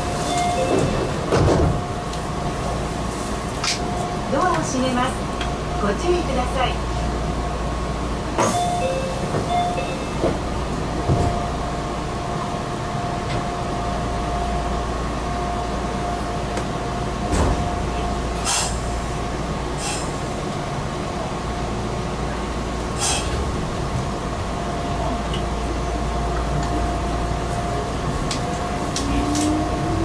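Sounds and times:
electric train running hum: 0.0s - 30.0s.

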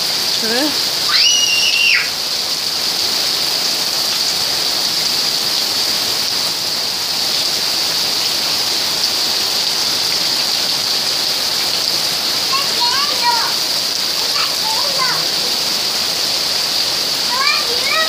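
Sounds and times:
hail and rain falling: 0.0s - 18.0s.

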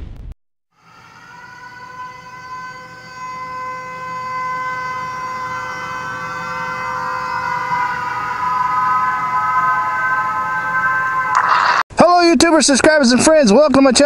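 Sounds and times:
held electronic chord: 0.7s - 11.8s.

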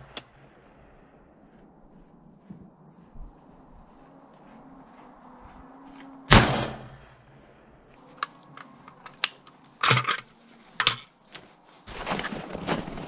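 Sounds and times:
rifle shot: 6.3s - 7.0s
light metallic clicks: 8.0s - 11.0s
magazine clattering: 8.1s - 11.1s.

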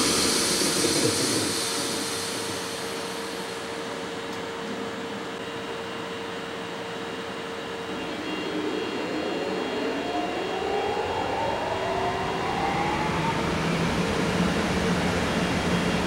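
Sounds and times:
rising electric whine: 7.1s - 15.4s.

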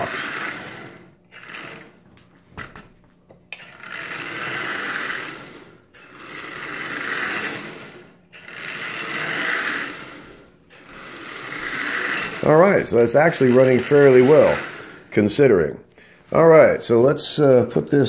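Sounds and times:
toy train wheels rattling: 0.0s - 2.0s, 3.5s - 15.1s
toy train motor whirring: 0.0s - 2.8s, 3.5s - 16.5s.

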